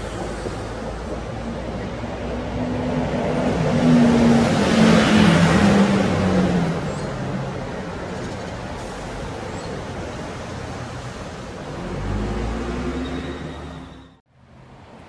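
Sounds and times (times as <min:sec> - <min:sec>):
vehicle passing by: 0:10.3 - 0:14.0.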